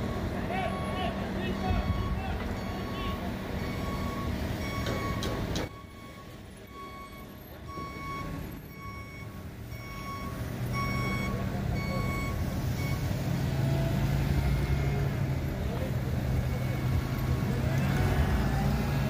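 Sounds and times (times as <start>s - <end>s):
reversing alarm beeping: 0.0s - 13.1s, 14.4s - 15.3s
engine low rumble: 0.0s - 19.0s.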